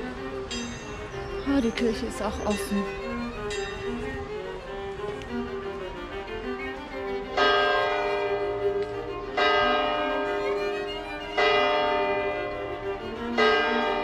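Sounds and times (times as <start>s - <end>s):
soft violin music: 0.0s - 14.0s
church bell tolling: 0.5s - 2.9s, 7.4s - 14.0s.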